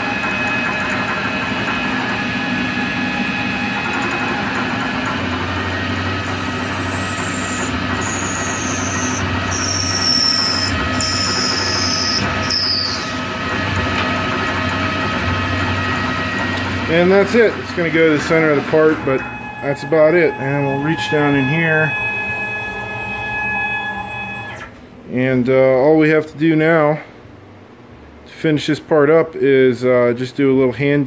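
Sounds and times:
lathe machine hum: 0.0s - 24.7s
high squeal from cutting: 6.2s - 13.3s, 19.2s - 24.5s.

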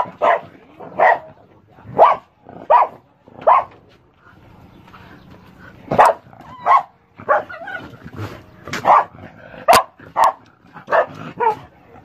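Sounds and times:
dog barking: 0.0s - 1.3s, 1.9s - 3.8s, 5.9s - 7.6s, 8.8s - 11.7s.

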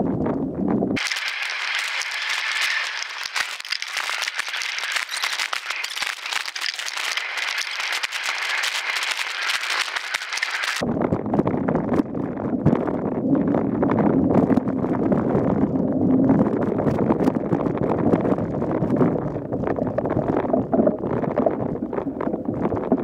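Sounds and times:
wind rumble on microphone: 0.0s - 1.0s, 10.8s - 23.0s
mountain bike rattling on trail: 1.0s - 10.8s.

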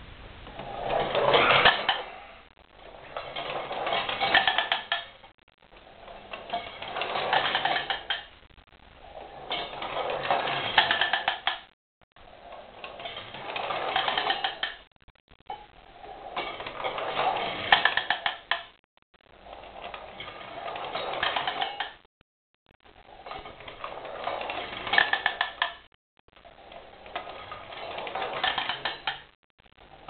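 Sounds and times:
tin rollers clattering on tiles: 0.5s - 5.2s, 5.8s - 8.4s, 9.1s - 11.7s, 12.3s - 14.9s, 16.0s - 18.8s, 19.5s - 22.1s, 23.2s - 25.9s, 26.6s - 29.3s.

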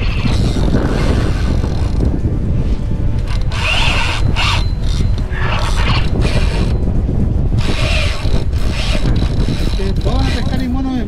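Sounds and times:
wind rumble: 0.0s - 11.0s
fishing reel ratcheting: 3.2s - 6.8s, 7.6s - 10.3s.

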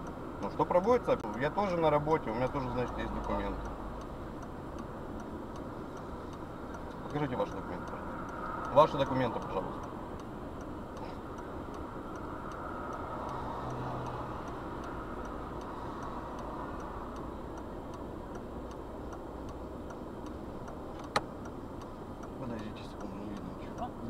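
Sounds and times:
faint regular ticking: 0.0s - 24.0s
sharp click: 20.9s - 21.3s.

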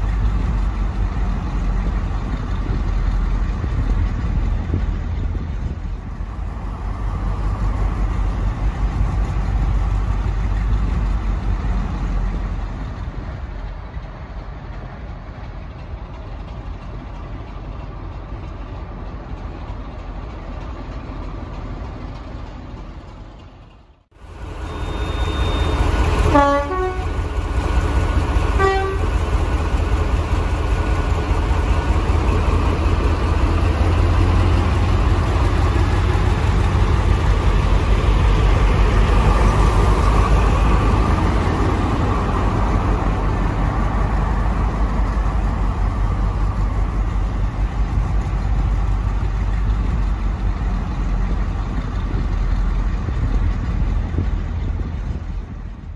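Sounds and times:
diesel locomotive engine running: 0.0s - 55.9s
locomotive horn blasts: 24.7s - 27.2s, 28.6s - 29.1s.

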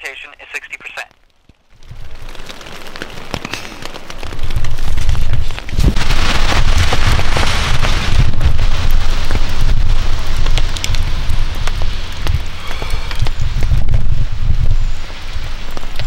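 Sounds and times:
rain drops tapping on tent: 0.8s - 16.0s
low microphone rumble: 4.4s - 15.6s.

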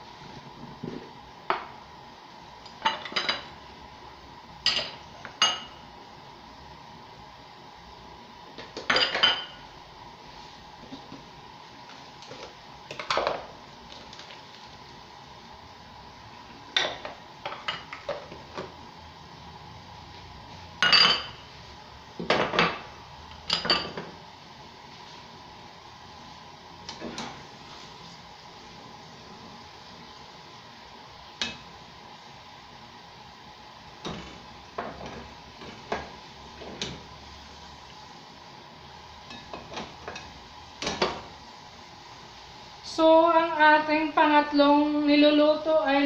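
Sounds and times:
dishes and cutlery clinking: 20.8s - 21.4s.

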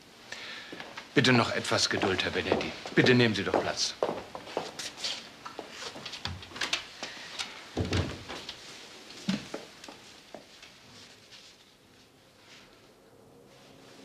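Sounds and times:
light knocks and shuffles: 0.8s - 6.8s.

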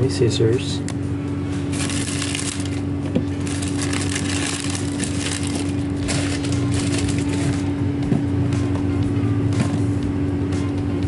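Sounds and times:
low hum: 0.0s - 11.0s
foil wrapper crinkling: 1.7s - 7.7s.

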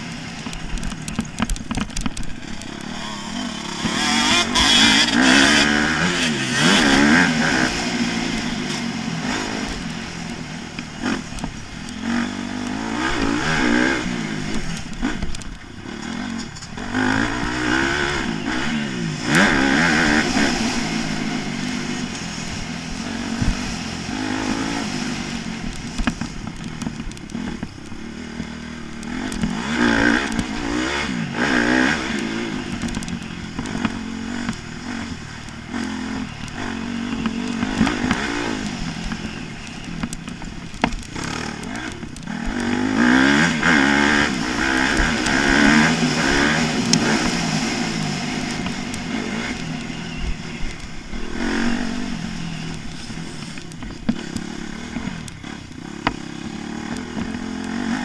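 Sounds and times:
bike knocks and rattles over bumps: 0.0s - 7.8s, 25.6s - 49.1s
motocross bike engine revving: 0.0s - 58.0s.

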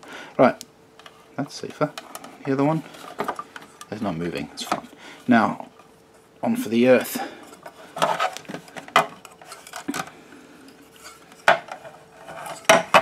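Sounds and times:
faint steady hum: 0.0s - 13.0s
plastic rubbing: 7.4s - 10.1s.

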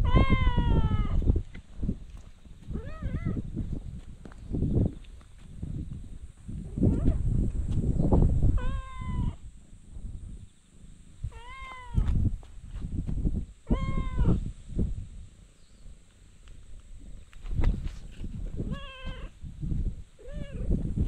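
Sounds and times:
cat meowing: 0.0s - 1.2s, 2.8s - 3.4s, 8.6s - 9.4s, 11.3s - 12.1s, 13.7s - 14.4s, 18.7s - 19.3s, 20.2s - 20.7s
low thumps and rumble: 0.0s - 15.3s.

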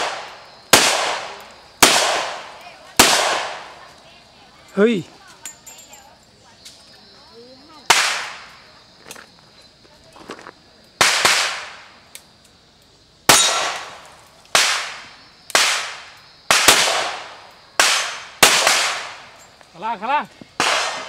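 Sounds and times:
pistol shots with echo: 0.0s - 3.8s, 7.9s - 8.5s, 11.0s - 11.8s, 13.3s - 19.4s, 20.6s - 21.0s.

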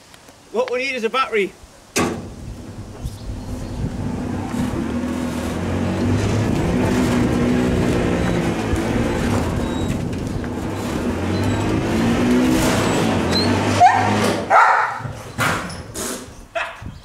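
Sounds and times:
electric motor humming: 2.3s - 13.7s
dog barking: 13.8s - 15.2s, 16.6s - 16.8s.

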